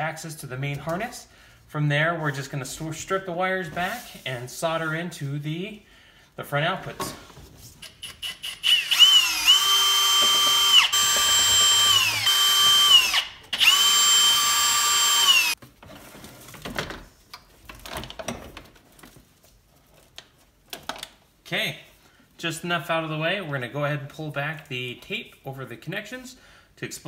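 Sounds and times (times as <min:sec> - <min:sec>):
cordless drill whining: 0:08.0 - 0:15.6.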